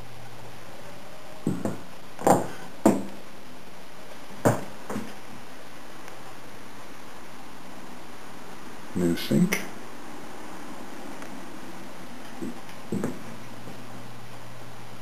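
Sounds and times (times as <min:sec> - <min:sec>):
steady hiss: 0:00.0 - 0:15.0
footsteps in a small room: 0:00.5 - 0:03.4, 0:04.0 - 0:06.4, 0:12.2 - 0:14.5.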